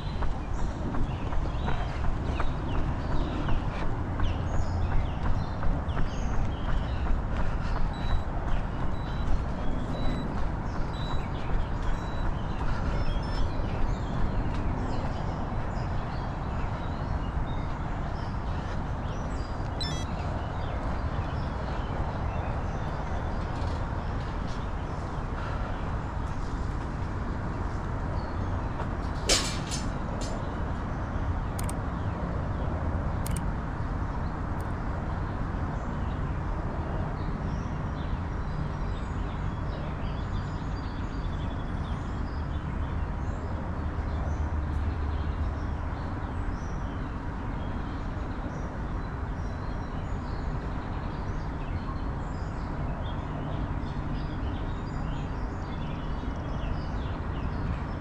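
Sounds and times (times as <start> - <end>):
low rumble of city ambience: 0.0 - 58.0
faint bird chirps: 19.7 - 20.5
sharp click: 31.6 - 31.8, 33.2 - 33.5.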